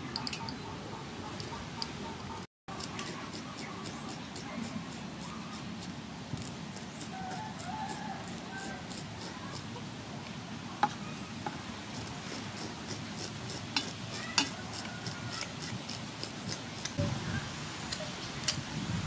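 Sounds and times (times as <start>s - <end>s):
scissors scraping fish scales: 2.7s - 9.7s, 11.9s - 17.0s.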